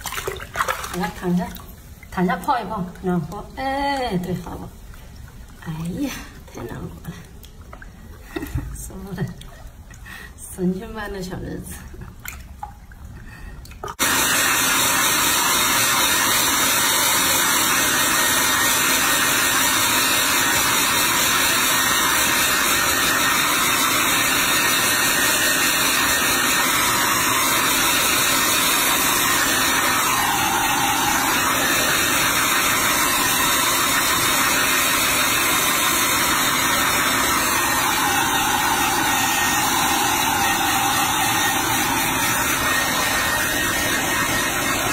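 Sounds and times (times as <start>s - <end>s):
hair dryer blowing: 14.0s - 44.9s.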